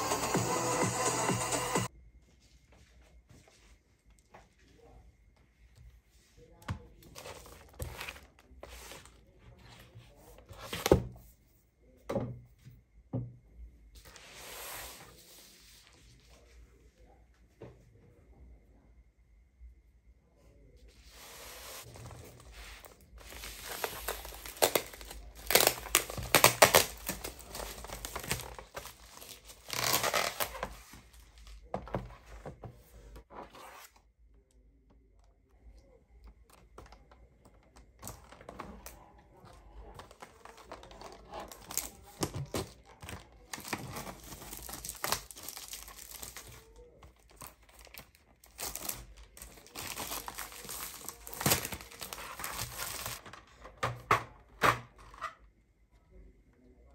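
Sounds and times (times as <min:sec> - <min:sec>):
plastic mailer tearing and crinkling: 0:21.8 - 0:31.0, 0:40.0 - 0:53.6.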